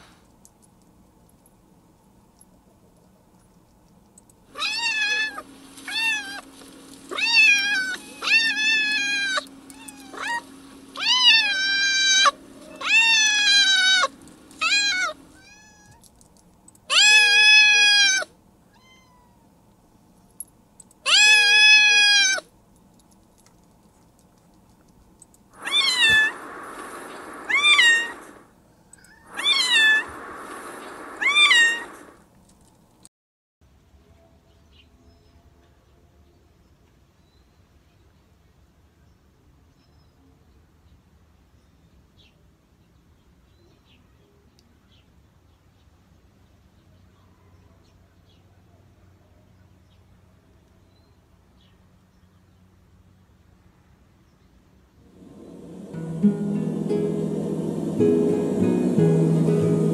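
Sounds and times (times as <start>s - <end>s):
cat meowing: 4.6s - 6.4s, 7.1s - 16.0s, 16.9s - 19.5s, 21.1s - 22.4s, 25.6s - 26.3s, 27.5s - 28.3s, 29.1s - 30.0s, 31.2s - 32.0s.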